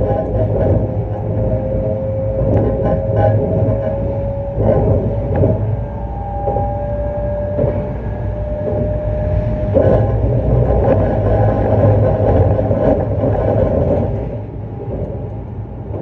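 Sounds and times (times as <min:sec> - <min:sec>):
electric train motor whine: 0:00.0 - 0:15.6.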